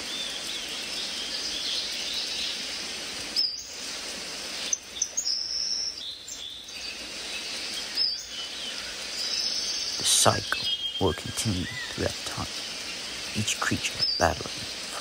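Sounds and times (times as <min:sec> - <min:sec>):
insect hiss: 0:00.0 - 0:15.0
high whistled bird calls: 0:03.3 - 0:03.8, 0:04.6 - 0:15.0
birds chirping: 0:04.5 - 0:15.0.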